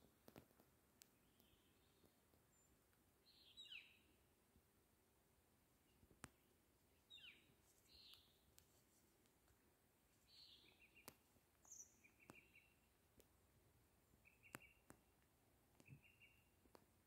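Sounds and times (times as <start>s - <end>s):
small clicks: 0.2s - 3.0s
songbird chirps and trills: 0.2s - 17.0s.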